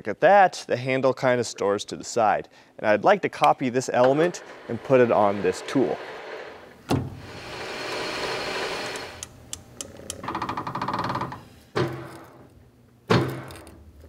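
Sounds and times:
lathe tool cutting steel hiss: 4.0 - 9.2.

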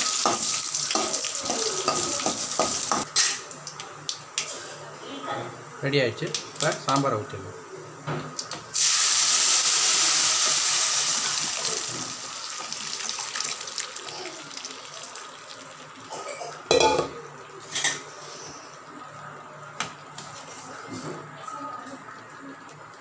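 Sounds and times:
liquid sizzling in hot oil: 0.0 - 4.6, 8.7 - 18.6.

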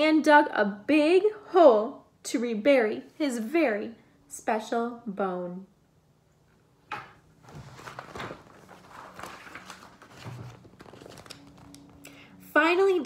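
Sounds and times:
book pages rustling: 7.4 - 12.2.

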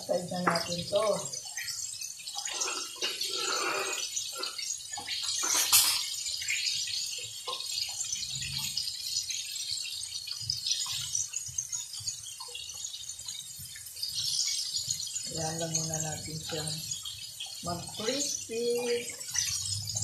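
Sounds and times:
chicken frying in oil: 0.0 - 20.0.

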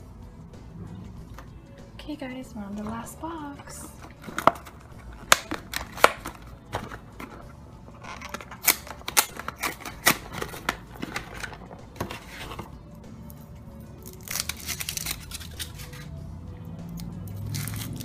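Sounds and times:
cardboard box being torn open: 14.2 - 16.0.

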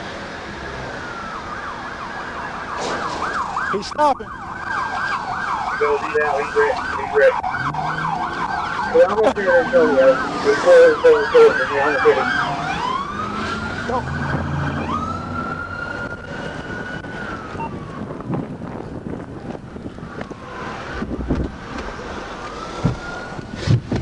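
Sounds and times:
police sirens: 0.1 - 23.8.

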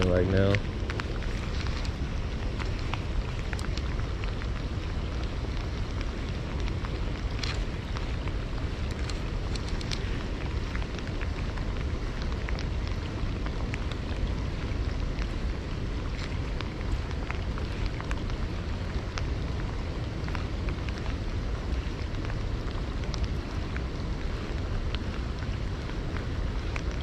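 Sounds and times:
low steady rumble: 0.0 - 27.0
rain falling on river: 0.0 - 27.0.

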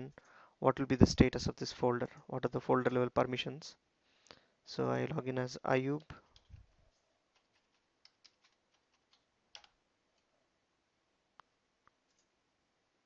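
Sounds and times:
keyboard typing: 6.2 - 6.7, 7.3 - 10.3, 12.0 - 12.4.

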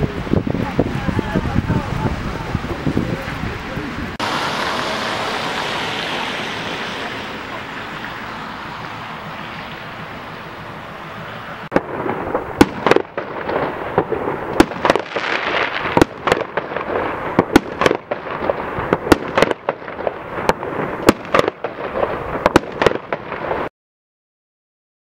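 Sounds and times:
fireworks crackling: 0.0 - 23.7
fireworks bangs: 11.1 - 23.7.

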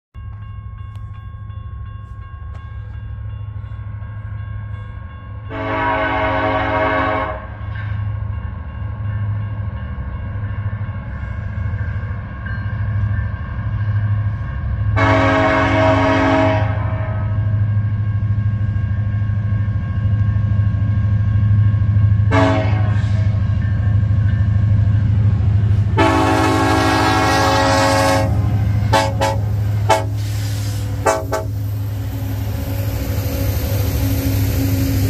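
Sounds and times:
train horn blasts: 5.5 - 7.7, 14.9 - 17.6, 22.2 - 23.5, 25.9 - 31.7
locomotive engine rumble: 8.0 - 35.0.

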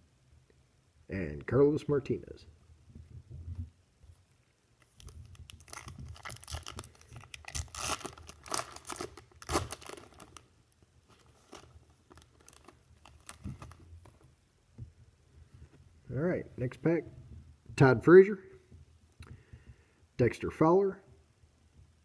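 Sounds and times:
foil wrapper tearing and crinkling: 4.8 - 10.5, 11.1 - 13.8.

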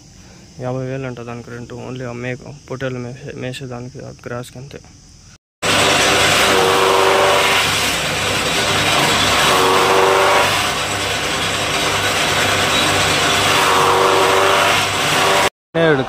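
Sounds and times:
chaff cutter motor humming: 5.6 - 15.5.

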